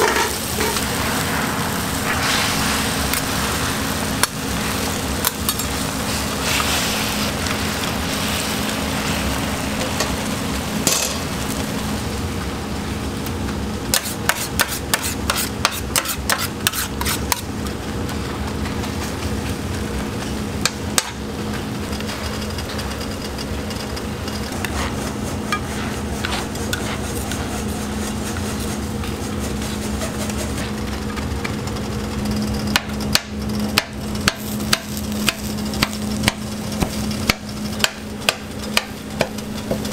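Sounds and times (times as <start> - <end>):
metal spatulas scraping and tapping: 0.0 - 0.8, 13.9 - 17.4
low hum: 0.0 - 6.4
food sizzling on a griddle: 0.0 - 18.2, 18.8 - 31.2, 33.2 - 39.9
scraper chopping on griddle: 13.9 - 17.4, 24.7 - 30.6.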